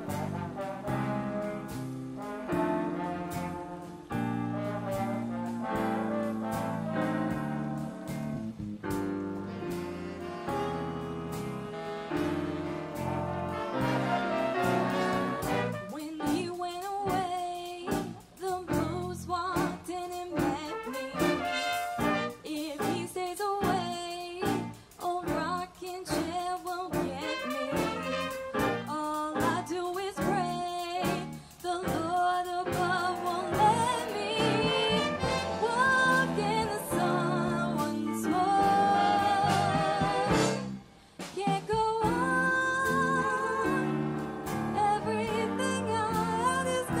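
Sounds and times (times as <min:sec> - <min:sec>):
big band horns playing: 0:00.0 - 0:47.0
woman singing: 0:15.9 - 0:40.7, 0:41.4 - 0:47.0.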